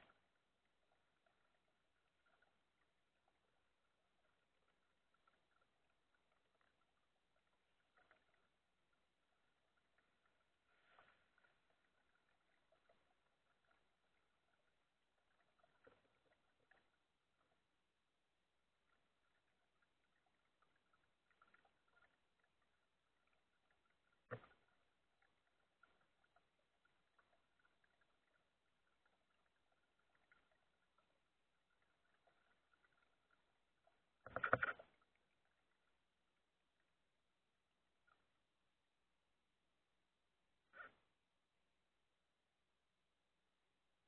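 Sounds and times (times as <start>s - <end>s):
water dripping and splashing: 0.0s - 17.7s, 18.8s - 36.0s.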